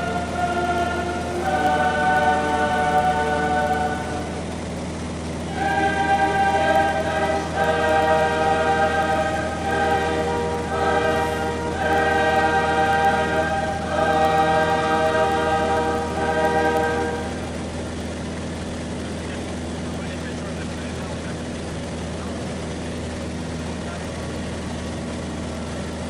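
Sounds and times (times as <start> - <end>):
choir singing sustained chords: 0.0 - 18.9
light aircraft engine drone: 0.0 - 26.0.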